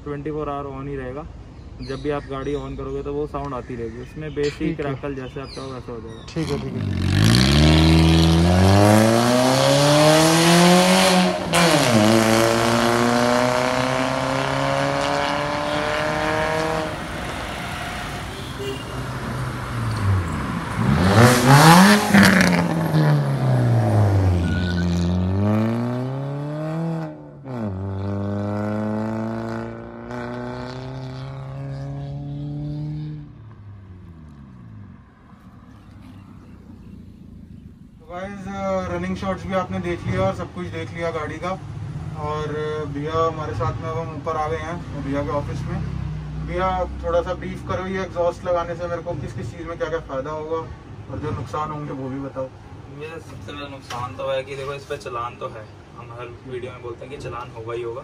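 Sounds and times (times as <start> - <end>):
car engine revving: 6.4 - 35.4.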